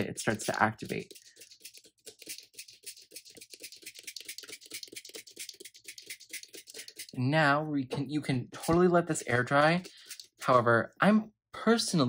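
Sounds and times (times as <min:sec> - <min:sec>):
spray bottle spritzing: 0:00.3 - 0:07.2, 0:09.8 - 0:10.4.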